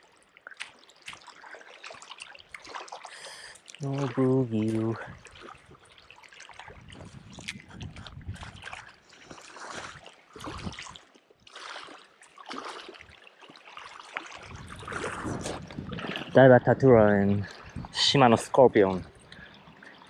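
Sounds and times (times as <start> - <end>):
small waves lapping: 0.0 - 20.0
wind gusting over microphone: 6.7 - 8.9, 10.4 - 11.0, 14.4 - 19.3.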